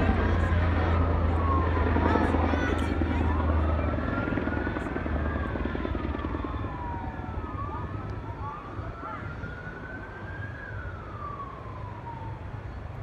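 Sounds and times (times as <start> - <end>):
emergency sirens wailing: 0.0 - 13.0.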